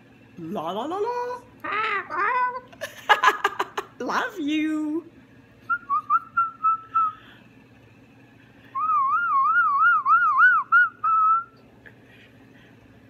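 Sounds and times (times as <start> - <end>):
cockatoo whistling: 5.6 - 7.2, 8.7 - 11.6.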